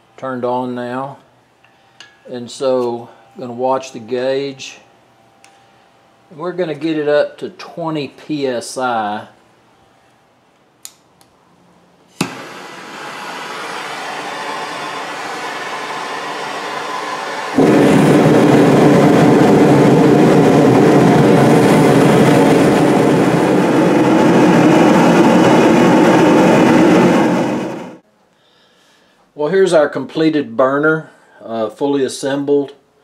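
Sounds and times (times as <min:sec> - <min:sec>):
hand torch click: 0:10.6 - 0:11.4
burner flame roaring: 0:12.2 - 0:28.0
gas hissing: 0:12.2 - 0:28.0.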